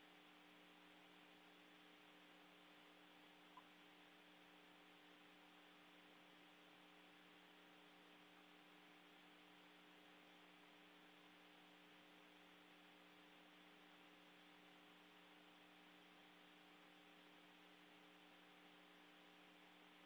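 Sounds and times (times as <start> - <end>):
faint steady hum: 0.0 - 20.0
tiny tick: 3.5 - 3.7.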